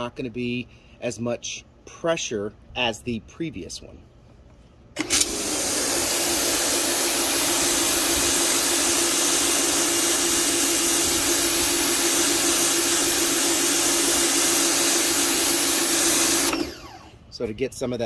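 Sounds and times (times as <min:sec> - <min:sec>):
electric pump motor hum: 0:05.0 - 0:17.2
pressure washer spray hissing: 0:05.2 - 0:16.5.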